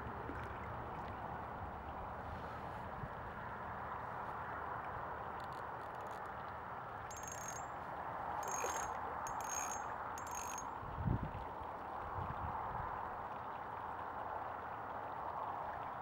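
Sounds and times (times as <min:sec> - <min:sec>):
hiss of water and wind: 0:00.0 - 0:16.0
fishing reel ratcheting: 0:07.1 - 0:07.6, 0:08.4 - 0:10.6.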